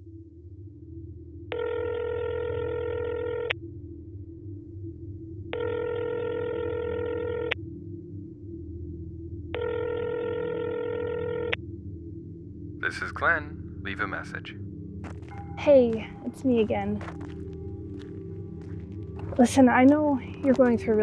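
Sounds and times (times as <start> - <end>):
low steady drone: 0.0 - 1.6, 2.2 - 21.0
telephone ringback tone: 1.5 - 3.5, 5.6 - 7.6, 9.6 - 11.5.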